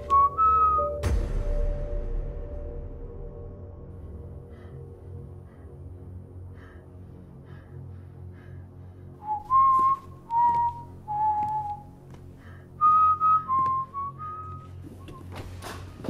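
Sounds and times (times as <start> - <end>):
person whistling a tune: 0.0 - 1.0, 9.2 - 11.9, 12.8 - 15.4.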